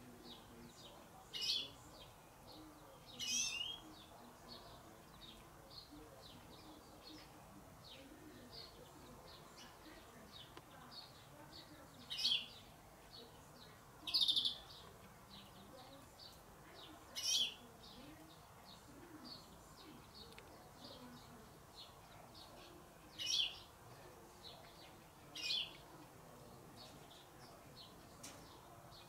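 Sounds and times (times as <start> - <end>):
faint bird chirping: 0.0 - 29.0
loud high bird chirps: 3.1 - 3.9, 14.1 - 14.8, 17.2 - 17.6.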